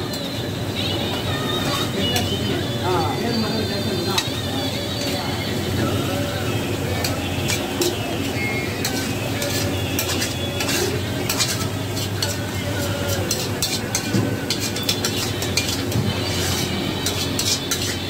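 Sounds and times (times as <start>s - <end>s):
pan sizzling: 4.1s - 18.0s
metal ladle scraping iron pan: 7.0s - 18.0s.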